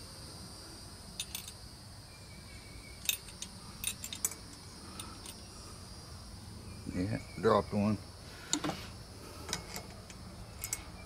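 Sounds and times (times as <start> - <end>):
small metal engine parts clinking: 1.2 - 1.6, 2.9 - 5.5, 9.4 - 11.0.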